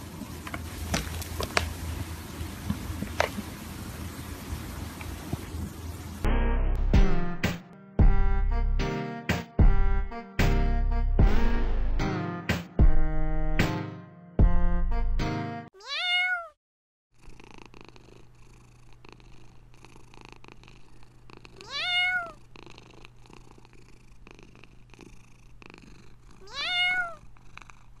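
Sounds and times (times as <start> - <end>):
cat meowing: 15.8 - 16.6, 21.6 - 22.4, 26.4 - 27.3
cat purring: 17.2 - 28.0.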